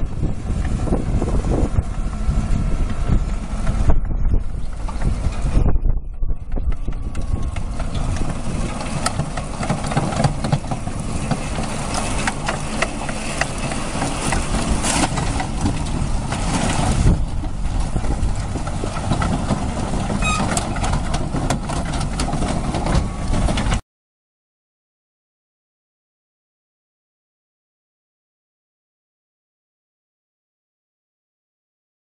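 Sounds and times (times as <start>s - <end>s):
vehicle engine running: 0.0s - 23.8s.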